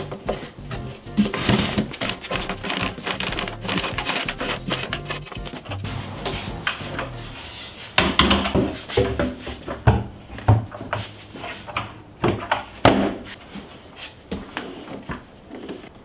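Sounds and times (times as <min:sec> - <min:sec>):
plastic and wood knocking: 0:01.2 - 0:05.7.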